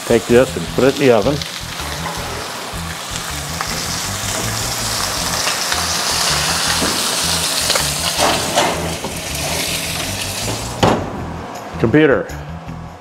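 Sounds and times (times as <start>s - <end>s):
steak sizzling in a skillet: 0.0s - 10.8s
skillet clunking on oven rack: 8.2s - 9.1s.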